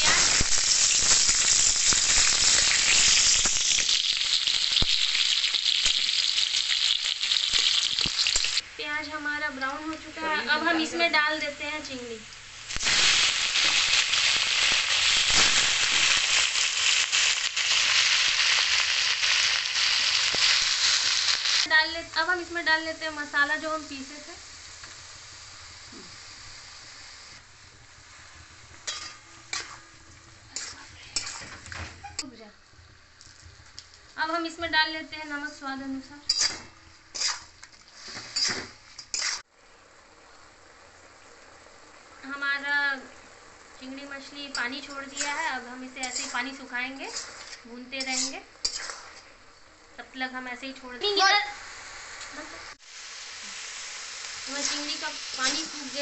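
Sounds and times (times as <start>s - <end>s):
onions sizzling in hot oil: 0.0s - 56.0s
metal spatula scraping a pan: 28.8s - 32.2s, 36.2s - 39.5s, 44.4s - 49.3s.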